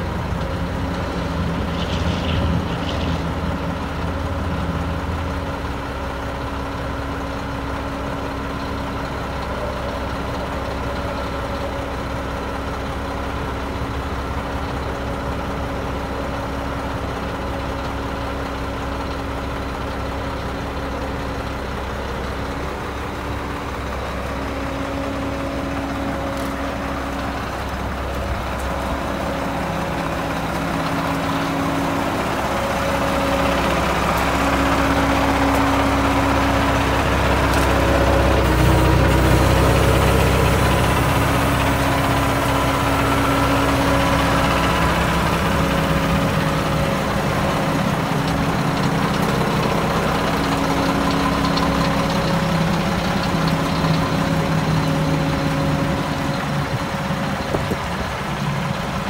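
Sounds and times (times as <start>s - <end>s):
diesel truck engine running: 0.0s - 59.0s.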